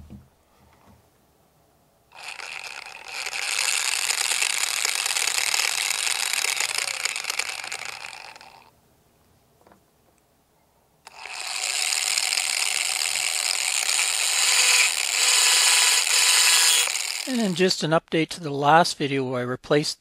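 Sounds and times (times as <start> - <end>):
electric motor gears whirring: 2.1 - 8.7, 11.1 - 17.6.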